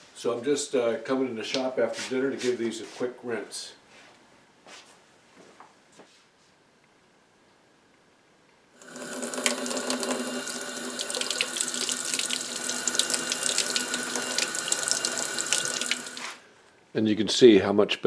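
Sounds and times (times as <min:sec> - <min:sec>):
faucet water splashing: 0:08.8 - 0:16.4.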